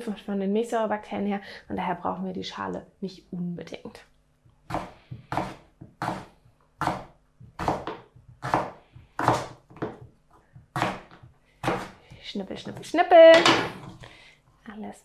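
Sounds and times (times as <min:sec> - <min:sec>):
knife slicing on wooden board: 0:10.8 - 0:12.0.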